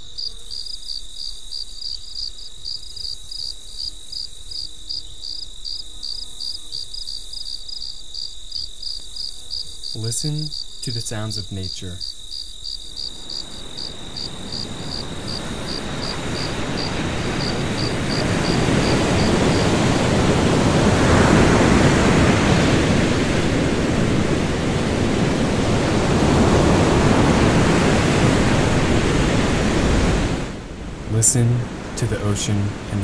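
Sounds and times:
crickets chirping: 0:00.0 - 0:32.8
ocean waves breaking: 0:13.4 - 0:33.0.

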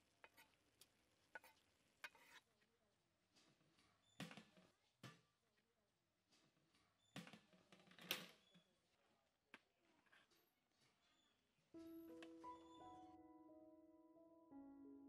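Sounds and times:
spoon scraping a pot: 0:00.2 - 0:00.6, 0:01.3 - 0:02.6.

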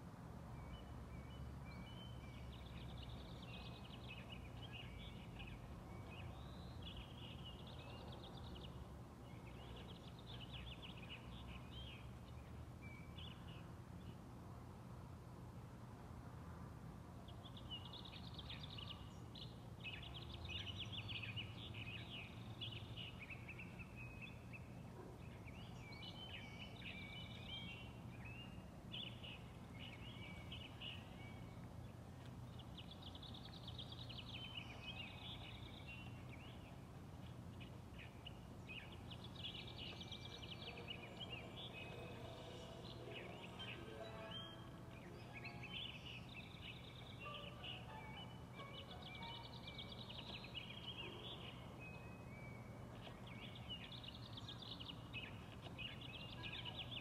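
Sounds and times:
birds chirping: 0:17.4 - 0:57.0.

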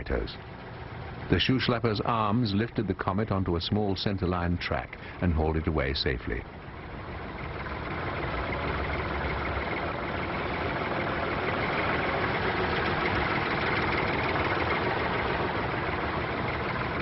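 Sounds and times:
tractor engine running: 0:00.0 - 0:17.0.

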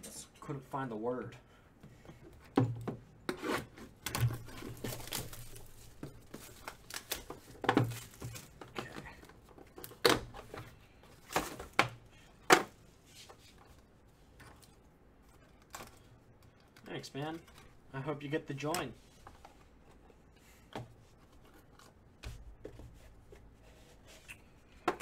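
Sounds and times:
plastic wrapping crinkling and tearing: 0:04.4 - 0:08.8.

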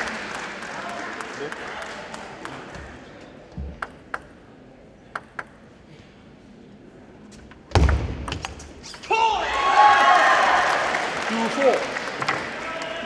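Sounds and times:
table tennis ball clicking: 0:05.1 - 0:05.6.

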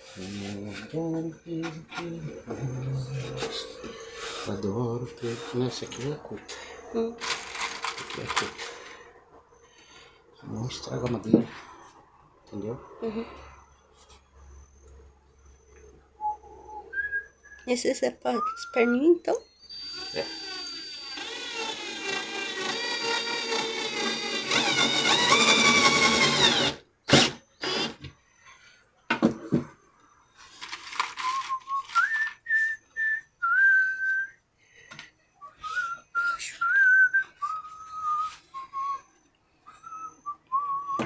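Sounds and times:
person whistling a tune: 0:16.2 - 0:17.7, 0:18.3 - 0:20.4, 0:31.2 - 0:34.4, 0:35.4 - 0:41.0
small electric power tool motor: 0:19.7 - 0:28.1.

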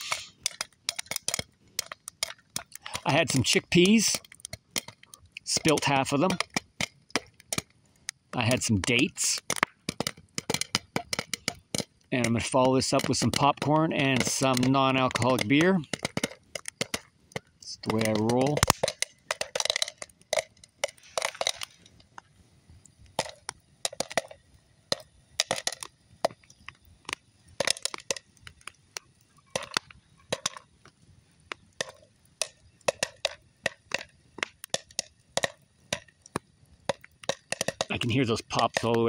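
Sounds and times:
popcorn popping in metal pot: 0:00.0 - 0:22.2, 0:23.1 - 0:39.0.

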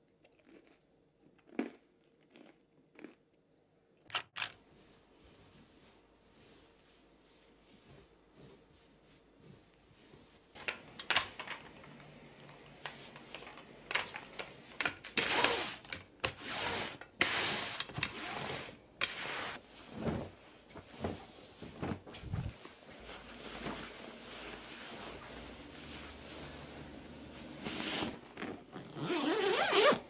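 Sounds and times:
lint roller swishing on fabric: 0:04.7 - 0:10.6, 0:15.3 - 0:30.0.

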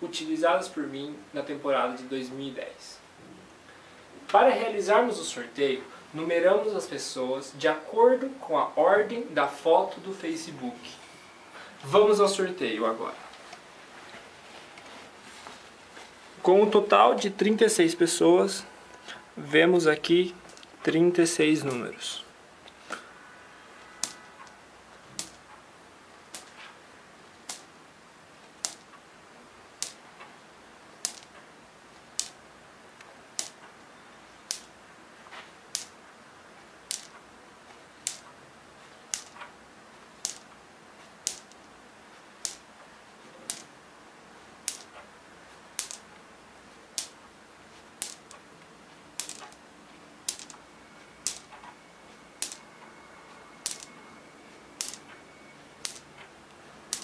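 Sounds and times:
balls clicking on a hard tabletop: 0:24.0 - 0:25.5, 0:26.3 - 0:26.7, 0:27.4 - 0:27.7, 0:28.5 - 0:29.0, 0:29.8 - 0:30.2, 0:31.0 - 0:31.4, 0:32.0 - 0:32.4, 0:33.3 - 0:33.7, 0:34.4 - 0:34.8, 0:35.7 - 0:36.0, 0:36.8 - 0:37.2, 0:38.0 - 0:38.4, 0:39.1 - 0:39.5, 0:40.2 - 0:40.6, 0:41.2 - 0:41.7, 0:42.4 - 0:42.7, 0:43.4 - 0:43.7, 0:44.6 - 0:45.1, 0:45.7 - 0:46.2, 0:46.9 - 0:47.2, 0:48.0 - 0:48.4, 0:49.1 - 0:49.6, 0:50.2 - 0:50.6, 0:51.2 - 0:51.6, 0:52.4 - 0:52.7, 0:53.6 - 0:54.0, 0:54.7 - 0:55.2, 0:55.8 - 0:56.2.

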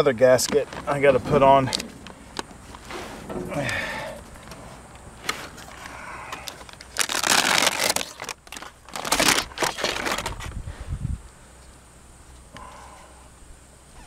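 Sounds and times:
backing peeling and crinkling: 0:00.0 - 0:10.8
low rumble: 0:00.7 - 0:06.3.

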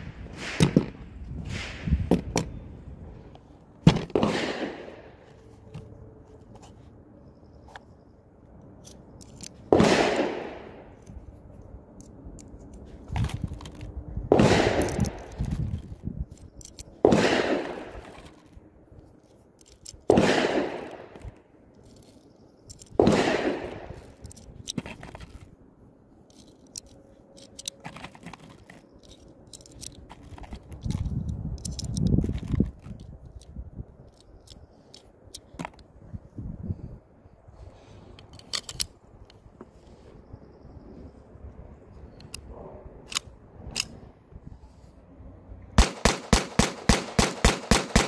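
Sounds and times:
gunshots with echo: 0:04.1 - 0:05.0, 0:09.8 - 0:10.7, 0:14.3 - 0:14.9, 0:17.1 - 0:18.0, 0:20.1 - 0:21.1, 0:23.0 - 0:24.0
rounds clicking into magazine: 0:08.5 - 0:25.5, 0:26.2 - 0:35.9, 0:38.0 - 0:39.4, 0:42.2 - 0:44.0.

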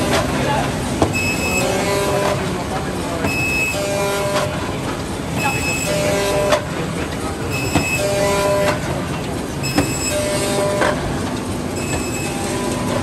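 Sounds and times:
machine knocking: 0:03.1 - 0:13.0.

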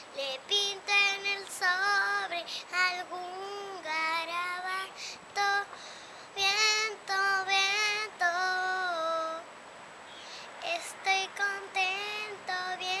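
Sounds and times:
girl singing: 0:00.0 - 0:09.5, 0:10.3 - 0:13.0.

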